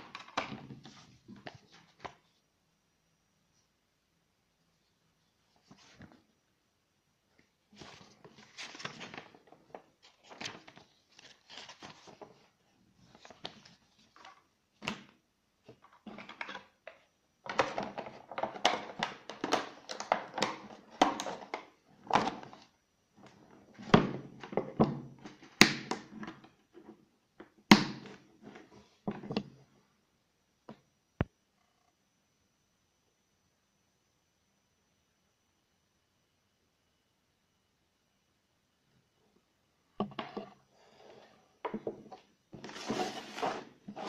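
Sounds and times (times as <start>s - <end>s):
paper rustling: 7.7s - 12.5s, 42.6s - 44.0s.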